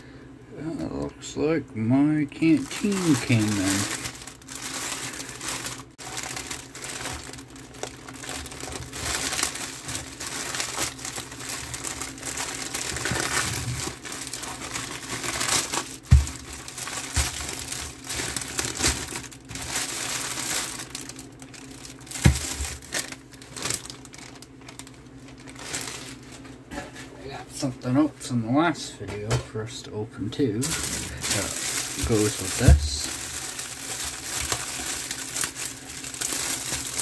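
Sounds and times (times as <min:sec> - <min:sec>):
plastic bag crinkling: 0:02.3 - 0:26.6, 0:30.6 - 0:37.0.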